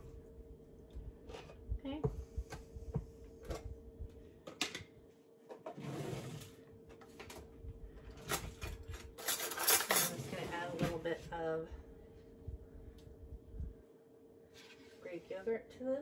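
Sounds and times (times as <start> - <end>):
utensils clattering in drawer: 8.2 - 11.0.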